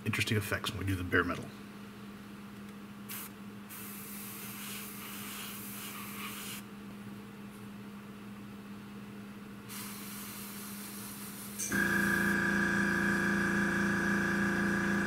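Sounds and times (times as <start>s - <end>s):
airbrush spraying hiss: 3.1s - 6.6s, 9.7s - 11.6s
steady low hum: 11.6s - 15.0s.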